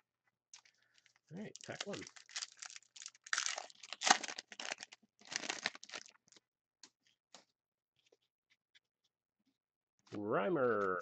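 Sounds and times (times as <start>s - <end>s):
foil wrapper tearing and crinkling: 0.6s - 6.4s.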